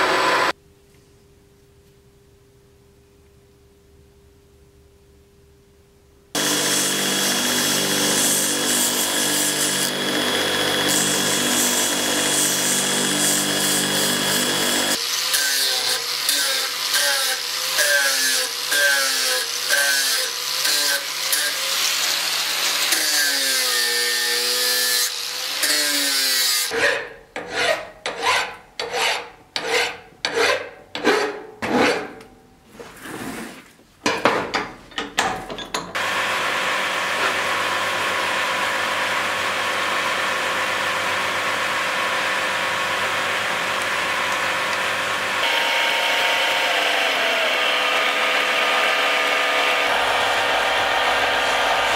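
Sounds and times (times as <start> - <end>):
angle grinder grinding steel: 6.4 - 32.1, 40.9 - 51.9.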